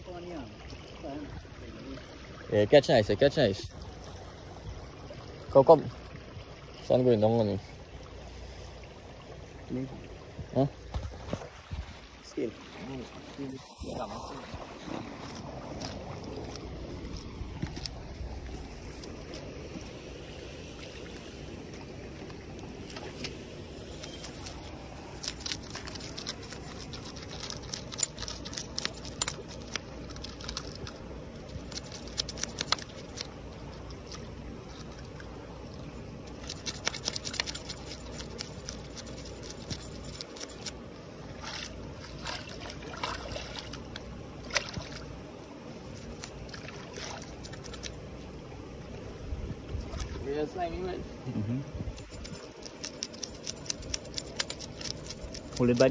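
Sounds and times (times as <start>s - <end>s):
shallow running water: 0.0s - 55.9s
blade scraping fish on rock: 22.9s - 33.3s, 36.3s - 40.8s, 52.0s - 55.9s.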